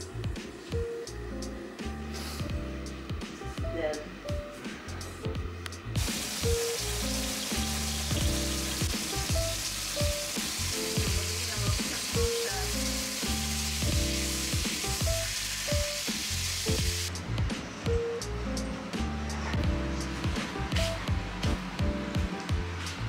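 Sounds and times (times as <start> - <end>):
background music with steady beat: 0.0 - 23.0
meat sizzling in frying pan: 6.0 - 17.1.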